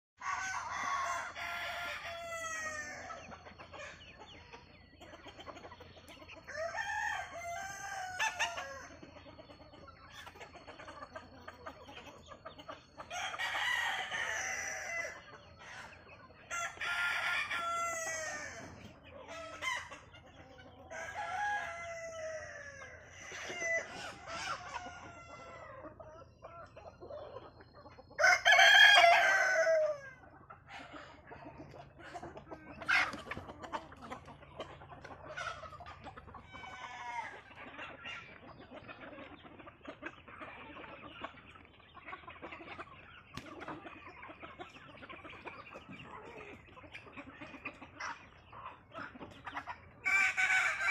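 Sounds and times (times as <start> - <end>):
roosters crowing: 0.2 - 4.0, 6.4 - 9.3, 12.9 - 26.1, 28.0 - 33.4, 34.6 - 38.4, 50.0 - 50.9
hens clucking: 0.2 - 50.9.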